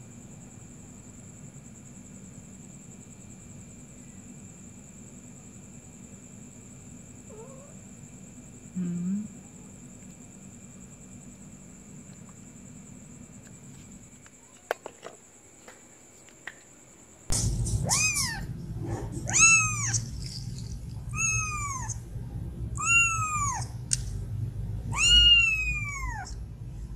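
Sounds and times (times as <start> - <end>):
kitten meowing: 17.8 - 18.5, 19.3 - 20.0, 21.1 - 22.0, 22.8 - 23.7, 24.9 - 26.4.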